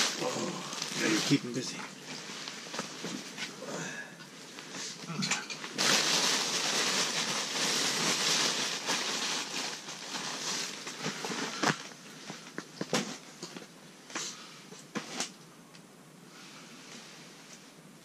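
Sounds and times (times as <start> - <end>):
rustling and scraping: 0.0 - 3.6, 4.4 - 15.4.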